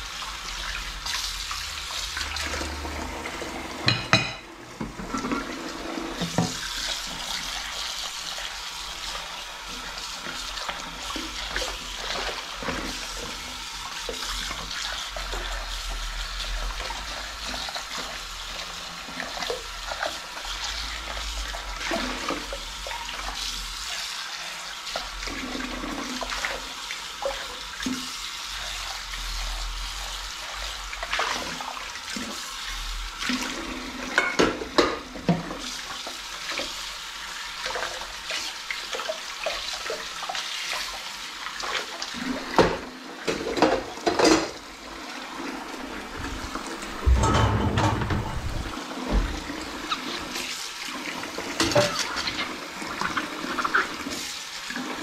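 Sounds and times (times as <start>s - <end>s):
saucepan being scrubbed: 0.0s - 55.0s
tap running into sink: 3.7s - 7.2s, 46.1s - 50.4s
dishware knocking: 3.8s - 4.5s, 47.0s - 49.3s.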